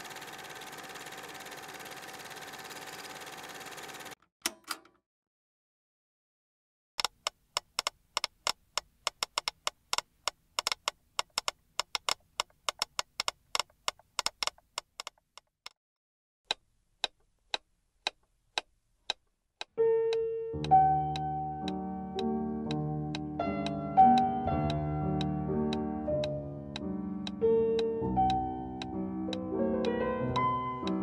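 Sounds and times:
metronomes ticking: 17.0 - 31.0
keyboard music with chords: 19.8 - 31.0.

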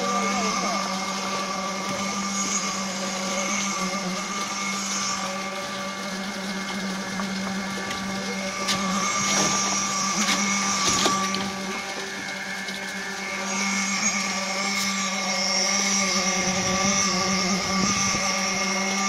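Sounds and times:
concrete pump humming: 0.0 - 19.0.

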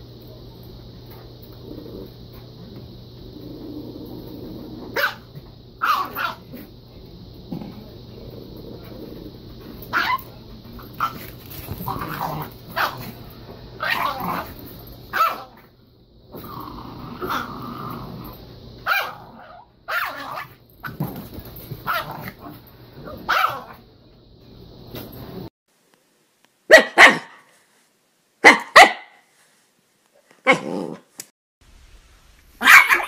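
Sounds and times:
dog growling: 1.5 - 5.0, 7.5 - 10.2, 10.9 - 13.2, 13.8 - 14.7, 16.3 - 18.4, 30.5 - 31.1
dog barking: 5.0 - 6.4, 12.8 - 13.1, 15.1 - 15.5, 18.9 - 20.5, 23.2 - 23.8, 26.7 - 27.5, 28.4 - 29.2, 32.6 - 33.0.

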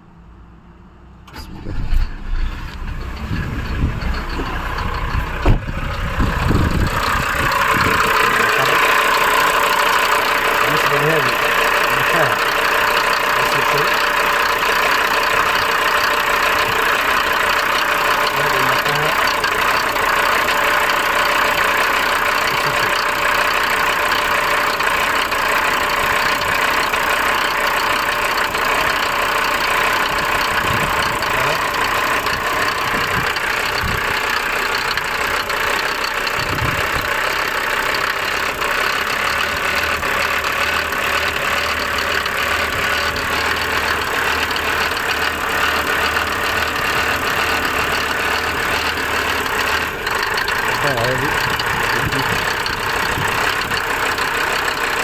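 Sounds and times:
diesel engine idling: 0.0 - 55.0
dull bumps: 2.2 - 8.3.

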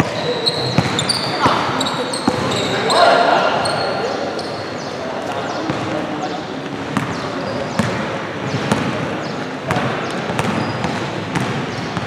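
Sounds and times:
gym background noise: 0.0 - 12.0
basketball bouncing on hardwood floor: 0.7 - 1.1, 7.8 - 8.9, 9.7 - 12.0.

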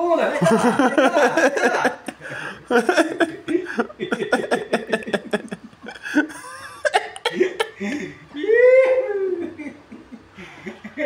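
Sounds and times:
people laughing: 0.1 - 11.0.

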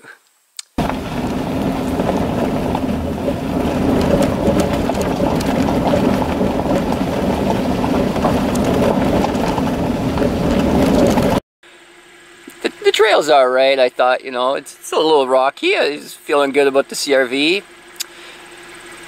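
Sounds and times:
gravel crackling under tyres: 0.7 - 11.4
tyre and road rumble: 0.8 - 11.4.

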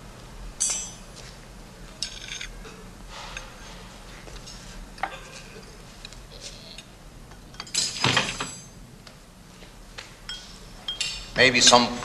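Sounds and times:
cutlery clatter: 0.6 - 1.0, 2.0 - 2.6, 4.4 - 5.8, 7.3 - 8.8
cutlery clinking on plates: 2.0 - 3.5, 4.3 - 6.1.

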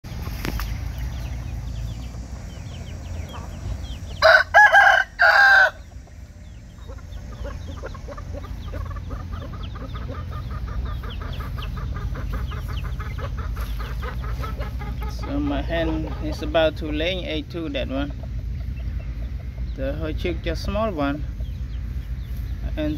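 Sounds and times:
low background rumble: 0.0 - 22.9
rooster crowing: 3.8 - 5.9.

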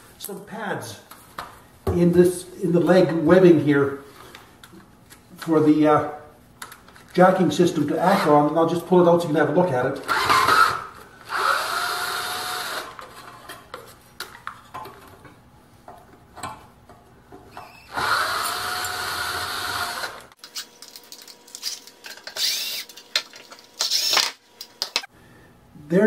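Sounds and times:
cordless drill spinning: 10.0 - 13.0, 17.7 - 20.8, 21.6 - 23.1, 23.8 - 24.4.

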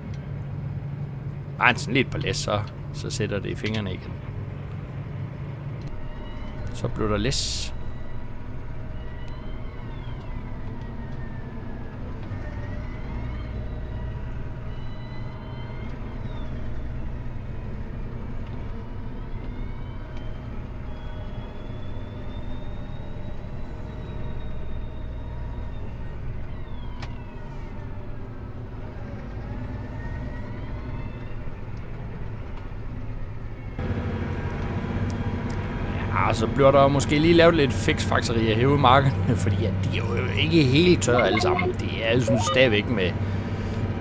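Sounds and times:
whining tones: 40.6 - 43.5.

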